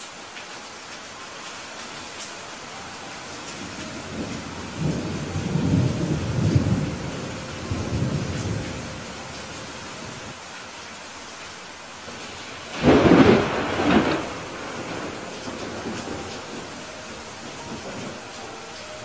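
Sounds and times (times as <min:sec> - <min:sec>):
steady rain hiss: 0:00.0 - 0:19.0
rumble of thunder: 0:03.6 - 0:09.4, 0:12.1 - 0:18.4.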